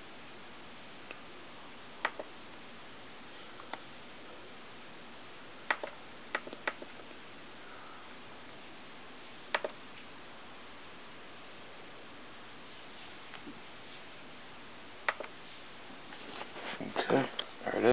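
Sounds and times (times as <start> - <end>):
laptop button clicks: 9.5 - 9.8, 15.1 - 15.3.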